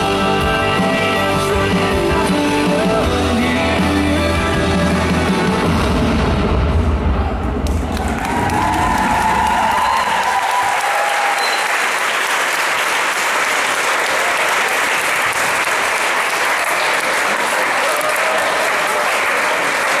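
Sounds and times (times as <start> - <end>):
music: 0.0 - 7.1
audience applauding: 7.6 - 20.0.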